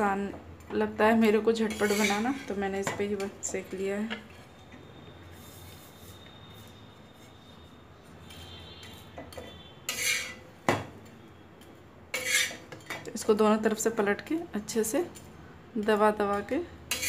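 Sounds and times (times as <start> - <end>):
metal spatula scraping on griddle: 1.6 - 2.7, 4.1 - 7.6, 8.2 - 10.5, 12.1 - 12.9.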